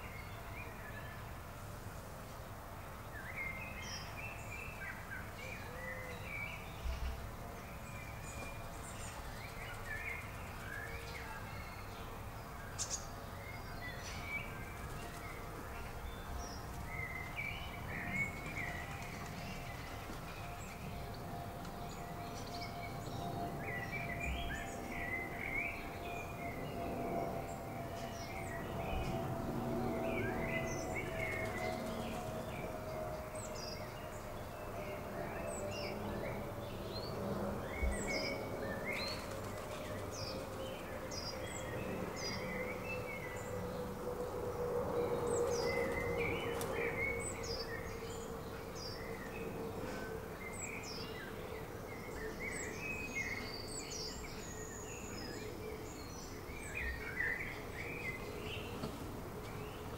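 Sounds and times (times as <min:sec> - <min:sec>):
small birds chirping: 0:03.0 - 0:59.9
steady low drone: 0:05.6 - 0:59.9.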